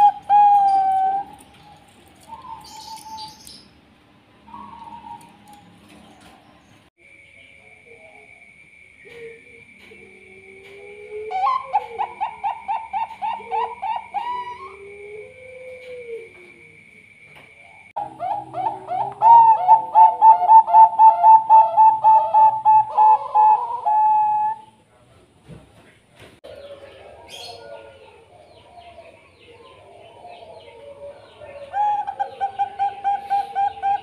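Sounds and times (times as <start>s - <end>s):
dove cooing: 0.0s - 3.4s, 4.5s - 5.6s, 9.0s - 16.7s, 17.7s - 24.8s, 26.5s - 34.0s
dove calls: 0.0s - 3.6s, 4.4s - 6.5s, 9.0s - 16.6s, 17.6s - 24.8s, 26.5s - 34.0s.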